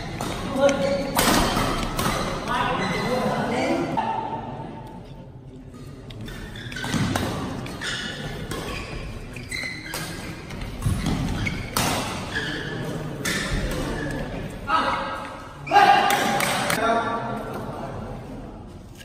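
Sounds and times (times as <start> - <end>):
rackets striking shuttlecock: 0.0 - 2.6.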